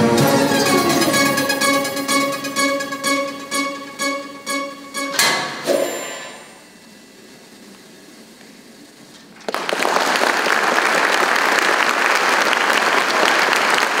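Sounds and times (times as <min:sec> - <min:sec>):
audience applauding: 0:09.4 - 0:14.0.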